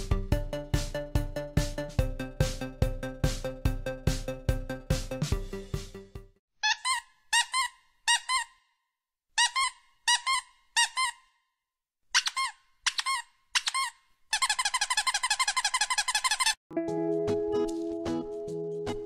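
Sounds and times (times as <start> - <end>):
rubber squeaky toy squeaks: 6.6 - 11.4, 12.1 - 16.6.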